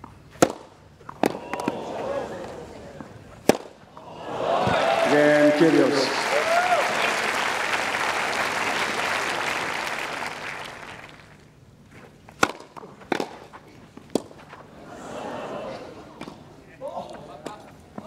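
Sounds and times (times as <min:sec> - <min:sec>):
tennis ball cracks: 0:00.0 - 0:03.9, 0:12.4 - 0:14.6
spectator applause: 0:01.4 - 0:03.0, 0:04.0 - 0:11.4.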